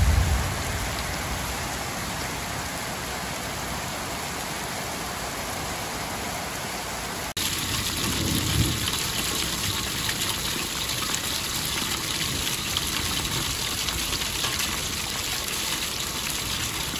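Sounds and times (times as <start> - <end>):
heavy rain on paving: 0.0 - 16.9
downpipe water gushing onto paving: 7.2 - 16.9.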